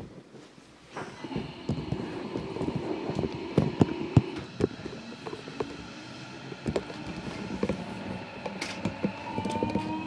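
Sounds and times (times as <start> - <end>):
electric train hum: 1.0 - 10.0.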